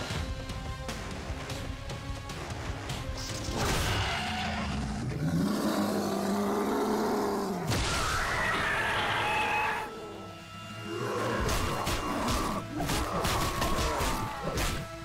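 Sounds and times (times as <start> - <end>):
dramatic orchestral score: 0.0 - 15.0
deep monster roar: 4.1 - 7.7.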